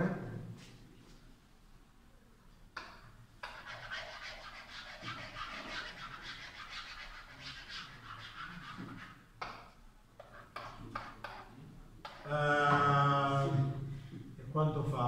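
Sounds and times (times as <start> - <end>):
stylus scratching on whiteboard: 3.4 - 12.3.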